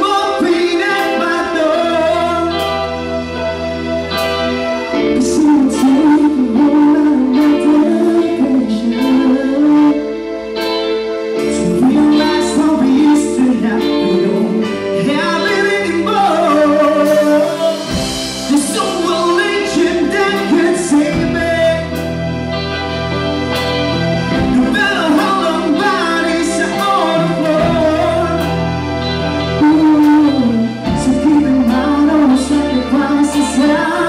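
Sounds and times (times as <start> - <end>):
live band playing pop ballad: 0.0 - 34.0
person singing: 0.0 - 34.0.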